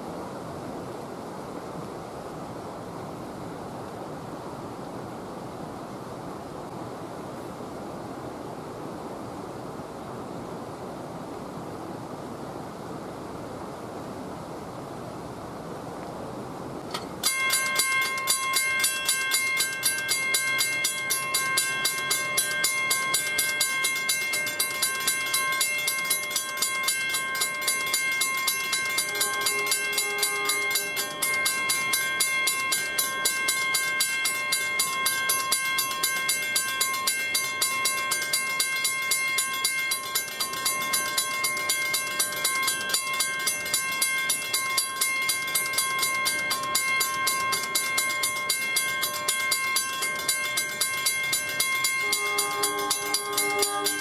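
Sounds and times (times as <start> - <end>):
crossing warning bell ringing: 16.9 - 54.0
train horn blast: 29.1 - 31.1, 51.9 - 54.0.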